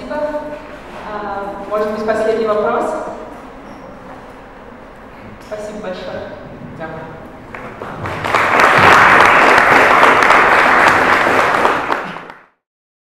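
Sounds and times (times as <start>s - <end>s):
audience applauding: 7.4s - 12.6s.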